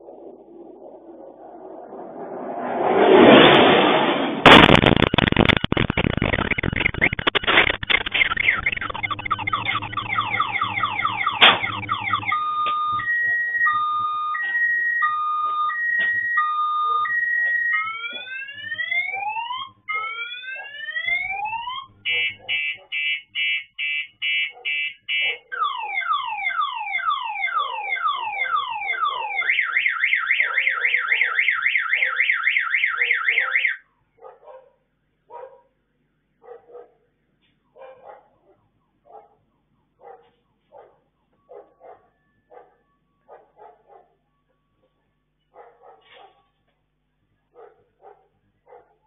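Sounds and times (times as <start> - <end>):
car alarm: 4.5 - 33.9, 41.2 - 45.2
dog barking: 13.2 - 13.7, 16.9 - 18.3, 19.9 - 20.8, 22.1 - 23.0, 24.5 - 25.6, 30.4 - 32.2, 34.2 - 35.8, 36.4 - 37.1, 37.7 - 46.7, 47.5 - 49.0.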